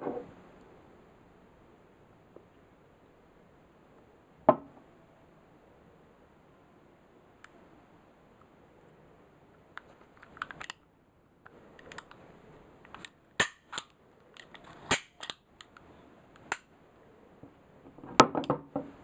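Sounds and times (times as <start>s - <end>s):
pistol mechanism clicking: 12.9s - 15.8s.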